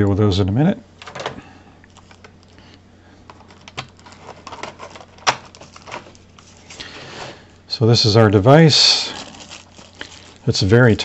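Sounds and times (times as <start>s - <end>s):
plastic packaging tray clicking: 3.3s - 6.1s.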